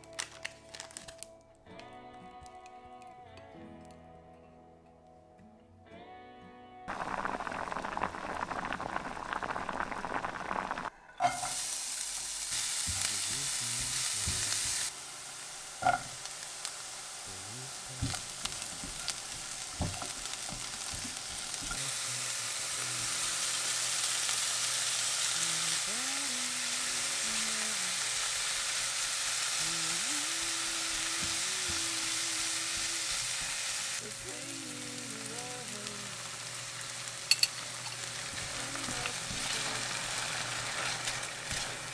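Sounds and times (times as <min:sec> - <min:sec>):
food sizzling in a pan: 0:06.9 - 0:41.9.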